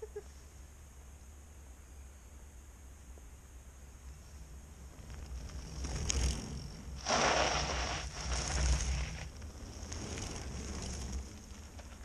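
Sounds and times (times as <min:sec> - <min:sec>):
low steady rumble: 0:00.0 - 0:12.0
bike tyres crunching on gravel: 0:04.7 - 0:12.0.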